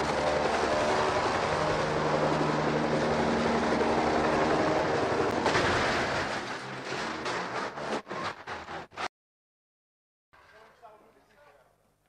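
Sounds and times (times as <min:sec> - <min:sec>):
helicopter engine and rotor humming: 0:00.0 - 0:05.4.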